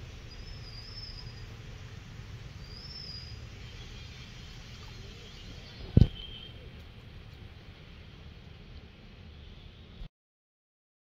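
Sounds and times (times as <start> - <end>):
low outdoor rumble: 0.0 - 10.1
bird chirps: 0.3 - 1.5, 2.6 - 4.2
sharp knock: 5.9 - 6.4.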